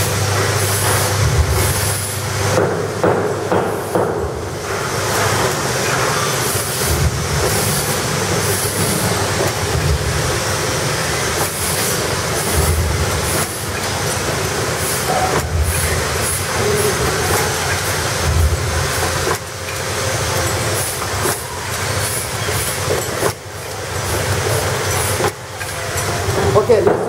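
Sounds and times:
packing machine clattering: 0:02.8 - 0:27.0.

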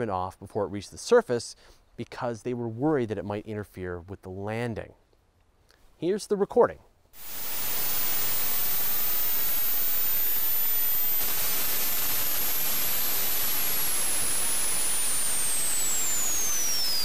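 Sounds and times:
static hiss: 0:07.2 - 0:17.0.

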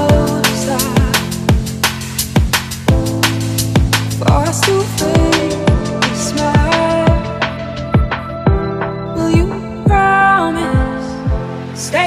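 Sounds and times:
held synth chords: 0:00.0 - 0:12.0
deep kick drum: 0:00.1 - 0:00.4, 0:01.0 - 0:01.8, 0:02.4 - 0:08.8.

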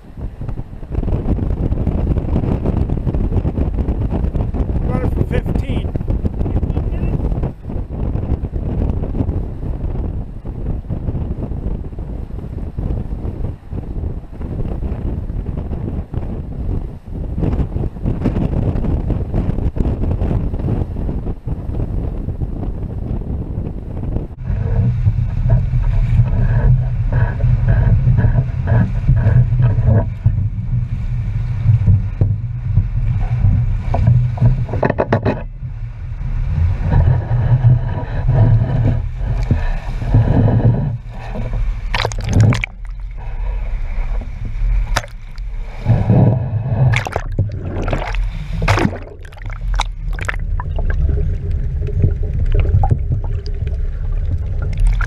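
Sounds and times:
sea waves sloshing around pilings: 0:24.4 - 0:55.0
water gurgling: 0:24.4 - 0:55.0
sharp water splashes: 0:41.8 - 0:43.2, 0:44.8 - 0:45.6, 0:46.9 - 0:55.0.

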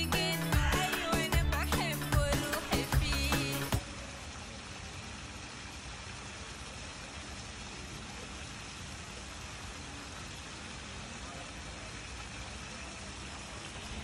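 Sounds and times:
music with singing: 0:00.0 - 0:03.9
outdoor background hiss: 0:00.0 - 0:14.0.

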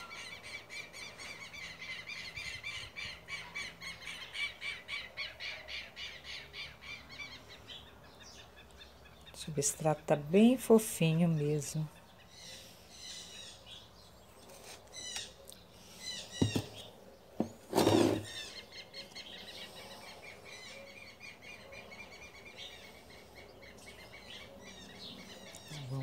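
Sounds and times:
small birds chirping: 0:00.0 - 0:26.0
hands working potting soil: 0:16.4 - 0:18.5.

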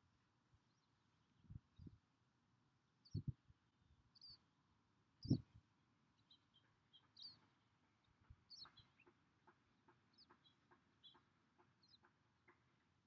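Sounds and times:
faint high bird chirps: 0:03.0 - 0:04.5, 0:05.2 - 0:05.5, 0:06.2 - 0:09.2, 0:09.9 - 0:12.6.

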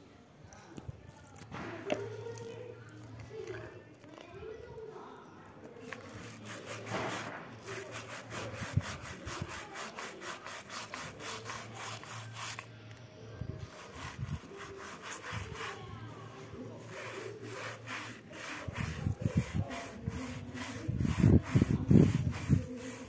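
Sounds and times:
brush scrubbing foam clog: 0:05.8 - 0:12.7, 0:13.6 - 0:23.0.

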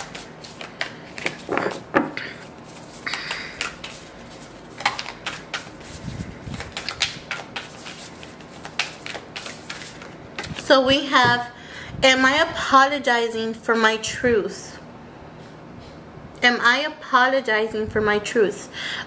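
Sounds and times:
cards being shuffled: 0:00.0 - 0:10.7.

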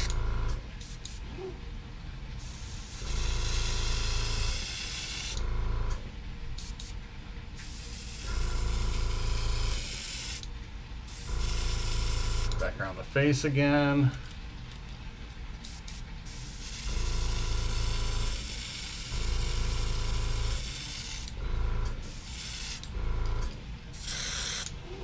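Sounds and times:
steady low hum: 0:00.0 - 0:25.0
airbrush hissing: 0:02.4 - 0:05.4, 0:07.6 - 0:10.5, 0:11.1 - 0:12.6, 0:15.6 - 0:21.4, 0:22.0 - 0:22.9, 0:23.9 - 0:25.0.

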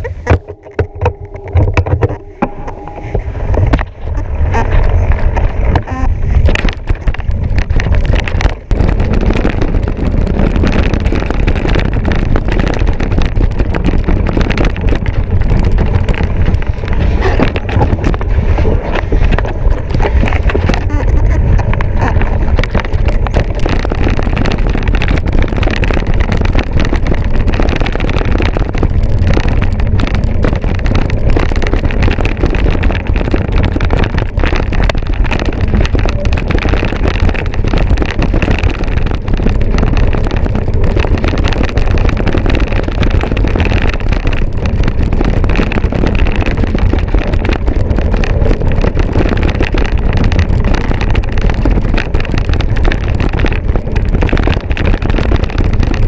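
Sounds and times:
mountain bike rattling on trail: 0:00.0 - 0:56.0
wind buffeting microphone: 0:00.0 - 0:56.0.

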